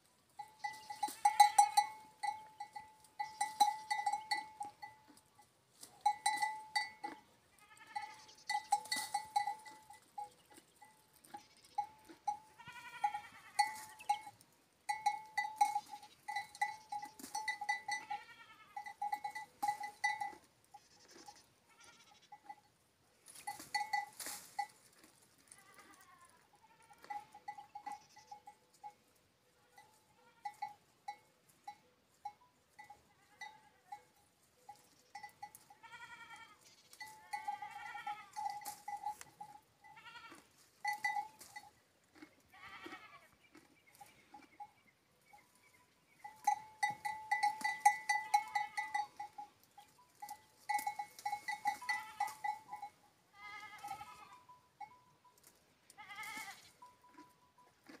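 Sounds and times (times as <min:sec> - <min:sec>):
livestock bells clinking: 0:00.0 - 0:26.0, 0:26.6 - 0:42.9, 0:43.9 - 0:58.0
animal bleating: 0:00.6 - 0:02.1, 0:06.8 - 0:10.0, 0:11.3 - 0:14.2, 0:15.7 - 0:19.1, 0:20.7 - 0:22.6, 0:25.4 - 0:28.5, 0:29.6 - 0:30.8, 0:33.1 - 0:34.1, 0:35.7 - 0:38.8, 0:39.8 - 0:41.0, 0:42.2 - 0:43.6, 0:47.9 - 0:49.2, 0:50.7 - 0:54.5, 0:55.9 - 0:57.3.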